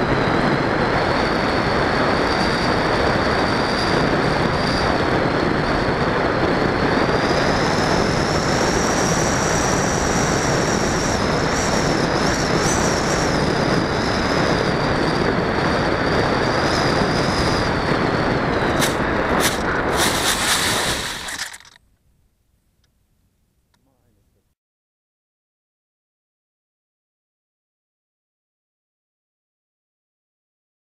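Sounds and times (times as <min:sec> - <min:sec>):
rushing air: 0:00.8 - 0:21.8
electric motor whine: 0:07.0 - 0:21.8
plane scraping through grass: 0:18.7 - 0:21.8.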